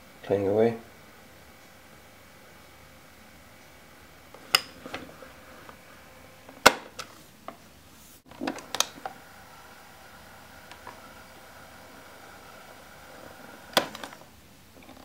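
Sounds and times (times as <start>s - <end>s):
cassette player plastic clicks: 4.4s - 5.1s, 6.5s - 7.1s, 8.3s - 9.2s, 13.6s - 15.0s.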